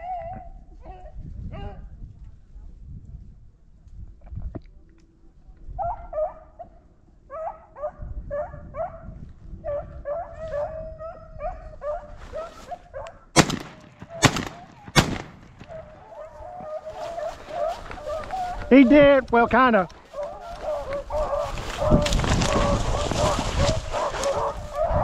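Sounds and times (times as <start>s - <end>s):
shotgun shots: 13.4s - 16.0s
hunting dogs baying: 14.0s - 25.0s.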